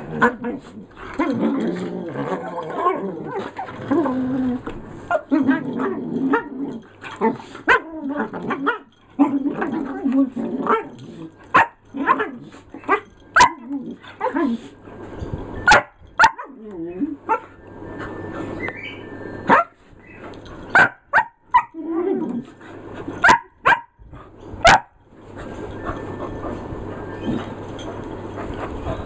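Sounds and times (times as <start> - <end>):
dogs growling: 0.0 - 12.9
dogs barking: 20.7 - 21.7, 23.2 - 23.9, 24.6 - 24.9.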